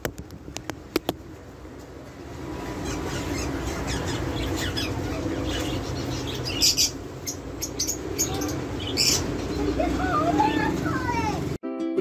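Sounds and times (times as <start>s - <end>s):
parrot chirping and squawking: 2.5s - 10.6s.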